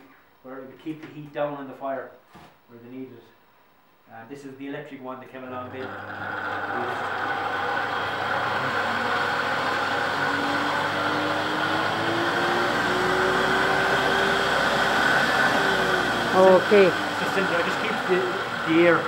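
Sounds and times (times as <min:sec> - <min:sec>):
faint fan hum rising: 0:00.0 - 0:19.0
forge blower rushing air: 0:05.7 - 0:19.0.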